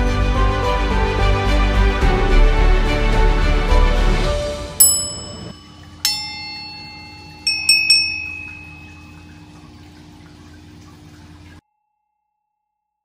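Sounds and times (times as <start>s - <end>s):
bright bell-like dings: 4.8s - 9.7s
faint steady hum: 4.8s - 11.6s.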